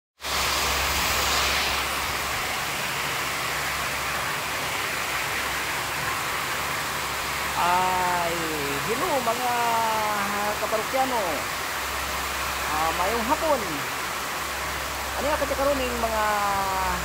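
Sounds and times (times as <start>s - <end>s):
heavy rain hissing: 0.2s - 17.0s.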